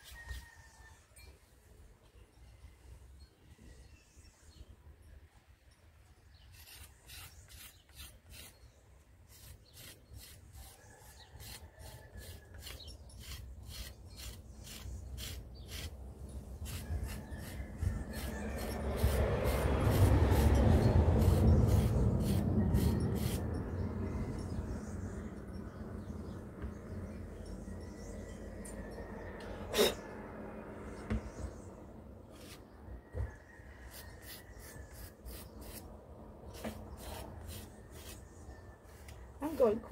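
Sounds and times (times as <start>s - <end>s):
rib scraping clay bowl: 9.3s - 16.0s, 16.6s - 23.5s.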